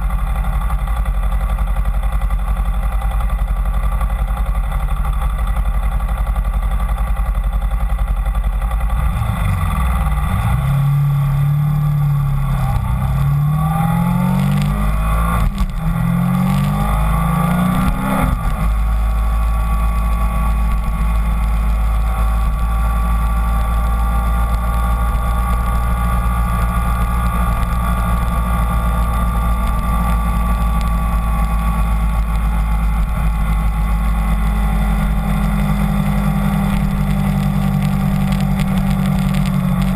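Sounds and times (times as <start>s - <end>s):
motorcycle engine accelerating: 0.0s - 39.9s.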